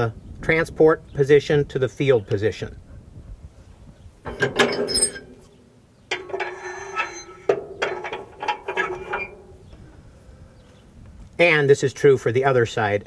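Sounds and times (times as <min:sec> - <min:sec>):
metal clicks and knocks: 0:04.2 - 0:09.8
metal pin scraping in bore: 0:04.3 - 0:09.9.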